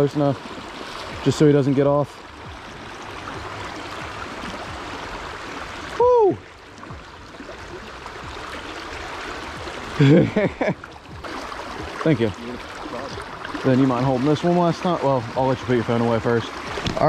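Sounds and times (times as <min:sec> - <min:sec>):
flowing river water: 0:00.0 - 0:17.0
voice falling in pitch: 0:05.9 - 0:06.4.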